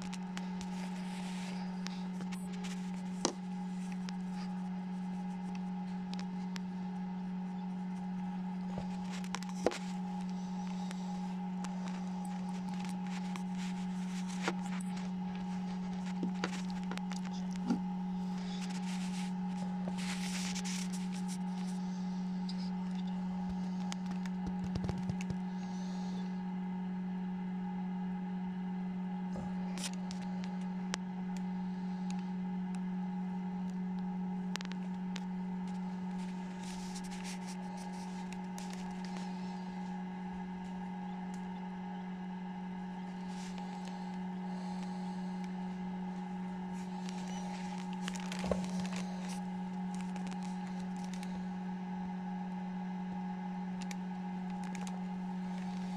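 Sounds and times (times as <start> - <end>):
light clicks and scrapes: 0.0 - 25.4, 34.5 - 41.5
fan motor humming: 0.0 - 55.9.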